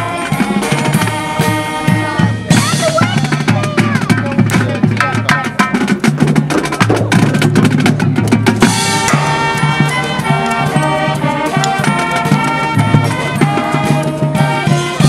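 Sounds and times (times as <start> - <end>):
horns playing held chords: 0.0 - 3.5, 8.6 - 15.0
snare and bass drums: 0.0 - 15.0.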